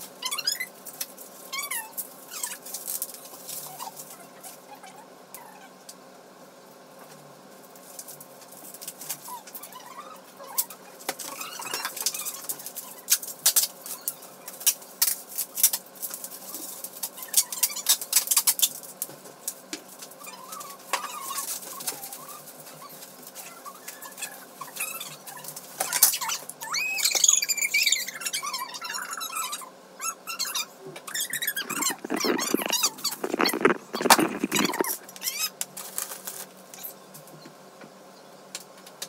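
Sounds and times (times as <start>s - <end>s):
high-pitched wavering squeaks: 30.4s - 35.4s
belongings clicking and rustling: 31.5s - 35.3s.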